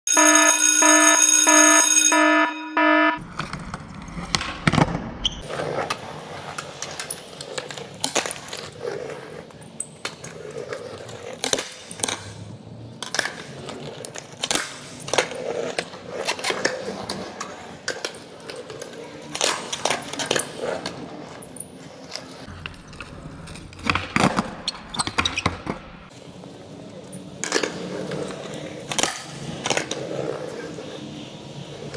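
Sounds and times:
loud electronic beeps: 0:00.1 - 0:03.2.

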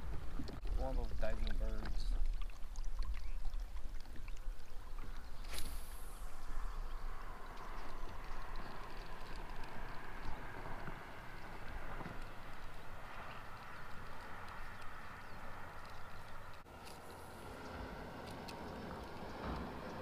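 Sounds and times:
wind rumbling on microphone: 0:00.0 - 0:20.0
fishing line swishing out: 0:05.4 - 0:06.6.

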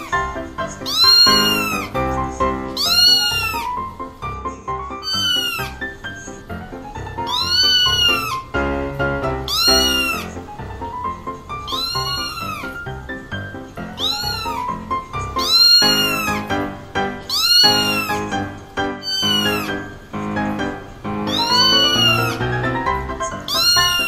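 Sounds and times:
background music: 0:00.0 - 0:24.0
kittens mewing: 0:00.0 - 0:24.0.

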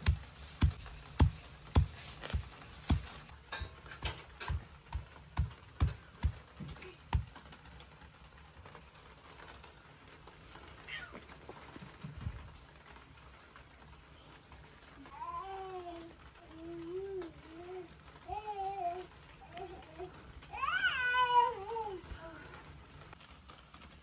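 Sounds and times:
pestle pounding in stone mortar: 0:00.0 - 0:03.2, 0:04.5 - 0:06.5.

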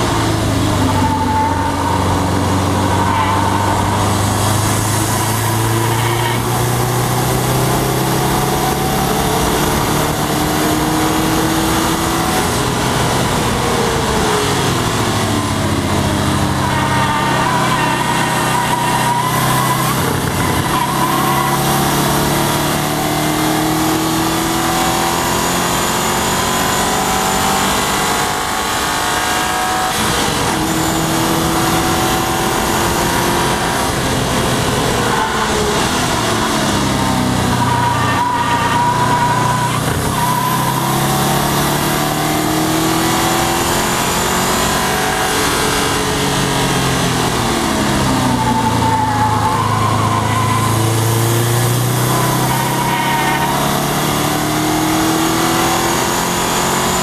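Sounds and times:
car engine accelerating hard: 0:00.0 - 0:57.0
wind and road noise: 0:00.0 - 0:57.0.

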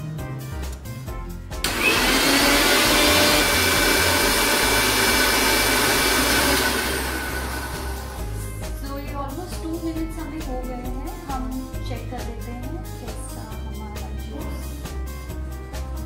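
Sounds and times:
blender motor whirring: 0:01.6 - 0:08.4.

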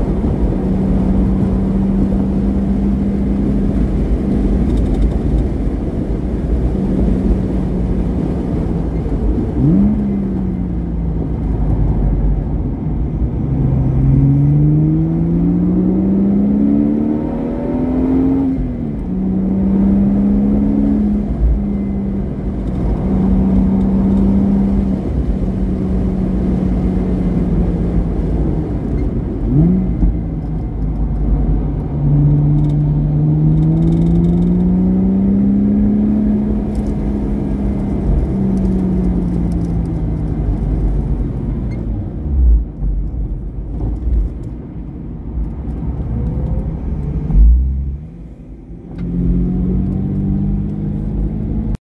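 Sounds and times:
sports car engine revving: 0:29.4 - 0:41.2, 0:46.0 - 0:51.8.

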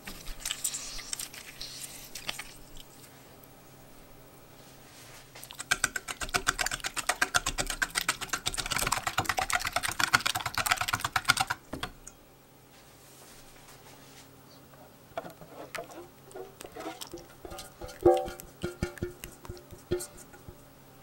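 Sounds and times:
wet batter slapping: 0:05.4 - 0:11.9, 0:15.7 - 0:20.6
fork clinking metal bowl: 0:15.8 - 0:20.5.

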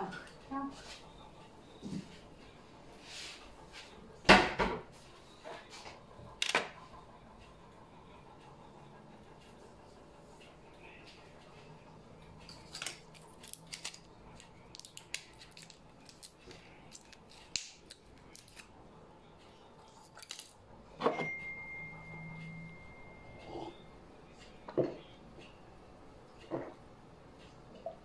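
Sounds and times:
small objects clicking and clinking: 0:12.5 - 0:18.7, 0:20.0 - 0:20.6
thin high-pitched tone: 0:21.1 - 0:23.9.

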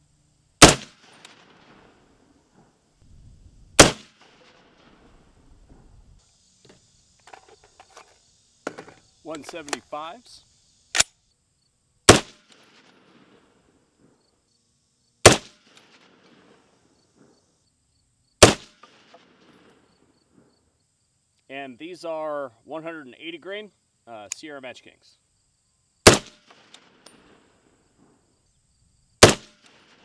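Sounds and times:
loud gunshots: 0:00.6 - 0:01.8, 0:03.8 - 0:04.6, 0:12.1 - 0:13.3, 0:15.2 - 0:16.5, 0:18.4 - 0:19.1, 0:26.0 - 0:26.7, 0:29.2 - 0:29.7.

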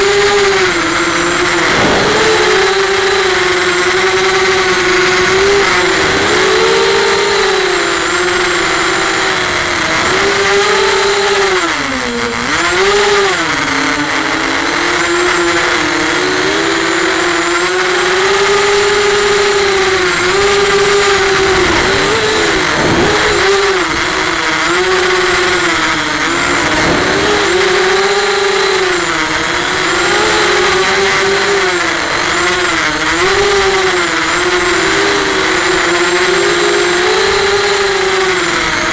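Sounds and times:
quadcopter motors whining: 0:00.0 - 0:38.9
hiss of air: 0:01.4 - 0:03.6.

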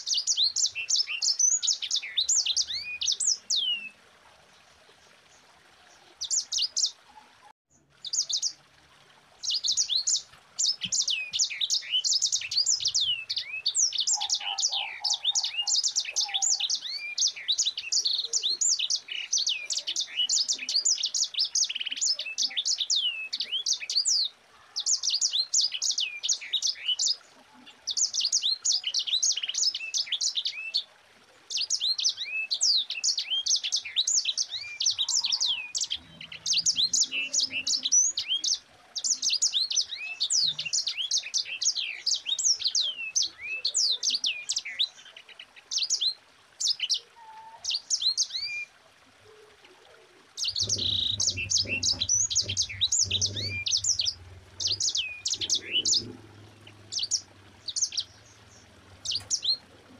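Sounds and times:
finch singing rolling song: 0:00.0 - 0:04.0, 0:06.1 - 0:07.0, 0:07.7 - 0:08.6, 0:09.4 - 0:30.9, 0:31.5 - 0:49.2, 0:50.2 - 0:59.9.

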